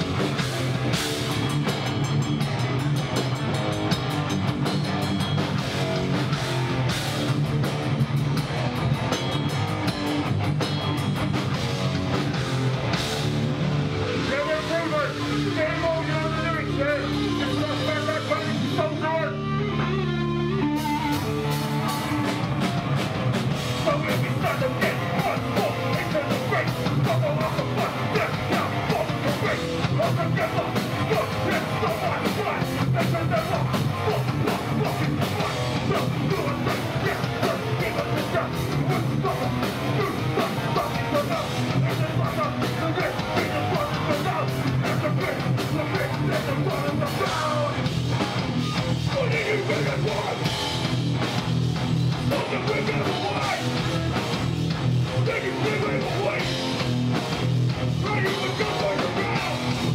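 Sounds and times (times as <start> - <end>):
punk band playing: 0.0 - 59.9
vocalist shouting: 23.8 - 47.8, 58.0 - 59.8.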